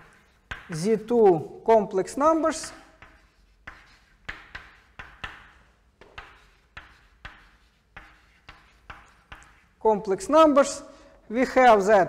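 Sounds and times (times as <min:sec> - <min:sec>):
chalk writing on blackboard: 0:00.0 - 0:01.1, 0:02.3 - 0:09.8.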